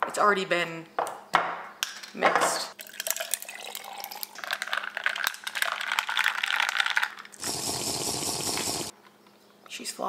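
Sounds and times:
liquid pouring into glass jar: 2.8s - 7.4s.

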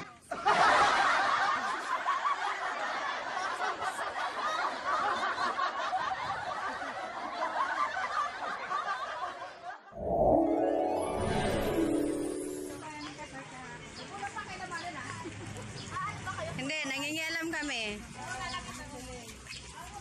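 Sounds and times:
people laughing: 0.3s - 9.9s.

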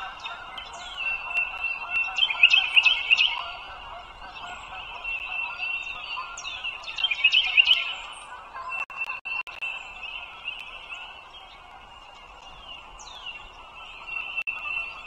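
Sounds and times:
eagles chittering and peeping: 0.0s - 9.2s.

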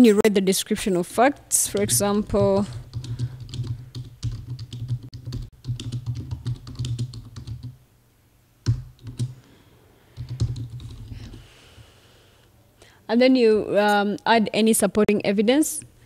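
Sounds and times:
typing on a computer keyboard: 1.7s - 7.8s, 8.6s - 9.4s, 10.2s - 11.4s.

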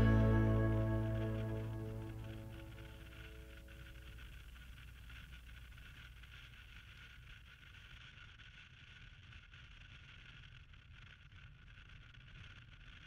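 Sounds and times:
low hum: 0.0s - 5.9s
faint steady hiss: 0.0s - 10.8s.

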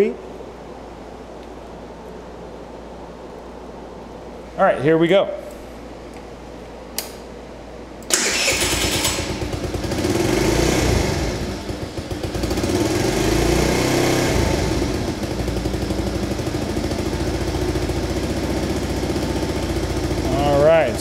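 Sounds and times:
scooter engine starting and idling: 8.1s - 21.0s.

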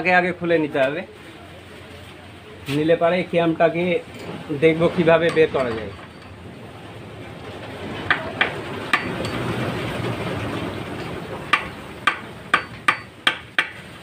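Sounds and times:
metal-on-metal knocks: 5.2s - 6.4s.

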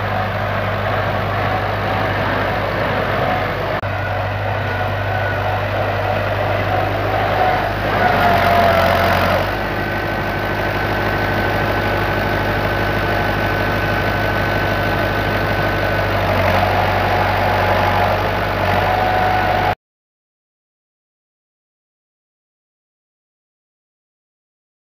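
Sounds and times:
tractor engine running under load: 0.0s - 19.8s.

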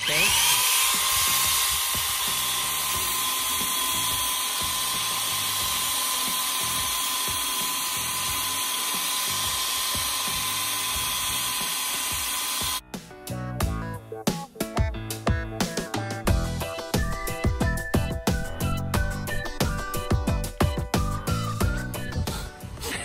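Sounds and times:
electric drill wire brush scrubbing: 0.0s - 12.8s
electronic music with a beat: 12.1s - 23.0s.

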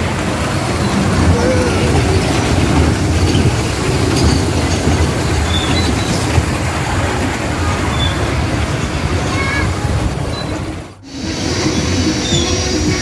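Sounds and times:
ride cars rumbling on rail track: 0.0s - 13.0s.

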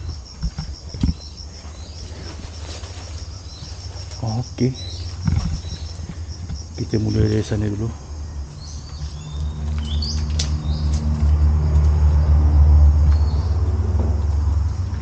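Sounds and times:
birds chirping: 0.0s - 12.4s, 13.0s - 15.0s
vehicle engine droning: 3.2s - 15.0s.

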